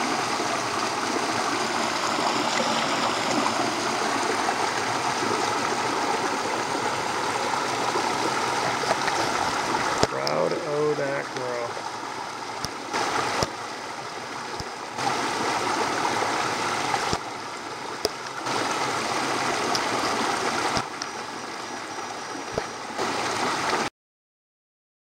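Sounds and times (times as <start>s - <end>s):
river rushing over rocks: 0.0s - 17.4s, 18.4s - 20.8s.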